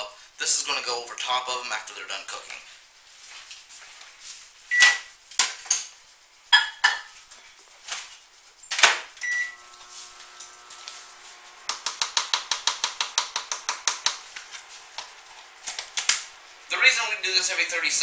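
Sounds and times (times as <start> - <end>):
keypad beep: 4.7 - 5.1, 9.2 - 9.6
microwave oven humming: 9.2 - 18.0
rapid sharp clicks: 11.6 - 16.4.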